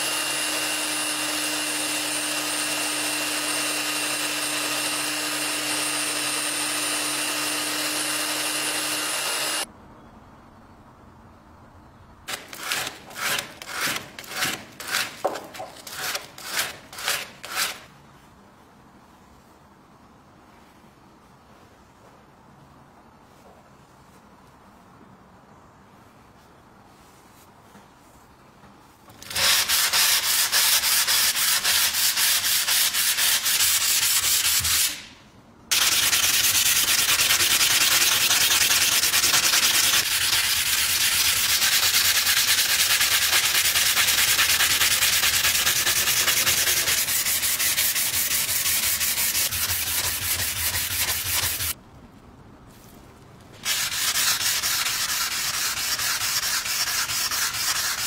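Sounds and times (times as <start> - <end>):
hand sanding a steel blade: 12.3 - 17.9, 29.2 - 35.1, 35.7 - 51.8, 53.6 - 58.0.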